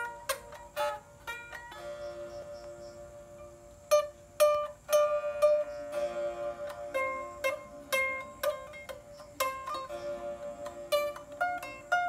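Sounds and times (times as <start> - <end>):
plucked lute notes: 0.0 - 12.0
lute drone note: 4.9 - 11.8.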